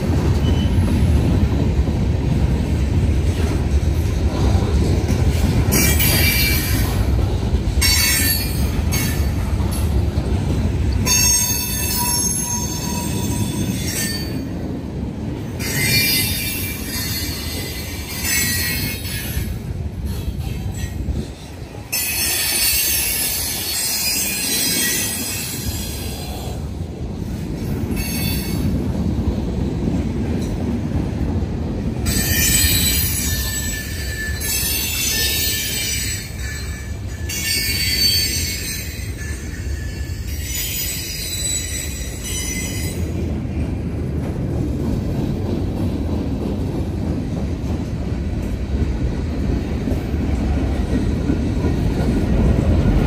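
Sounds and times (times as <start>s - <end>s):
freight train wheels rumbling on rail: 0.0s - 53.0s
high-pitched wheel squeal: 32.1s - 43.0s.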